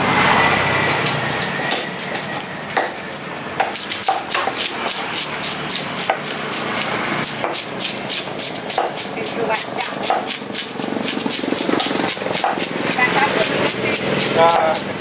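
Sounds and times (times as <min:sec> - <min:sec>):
knife chopping fish: 0:00.2 - 0:15.0
blade knocking on wooden block: 0:06.0 - 0:14.9.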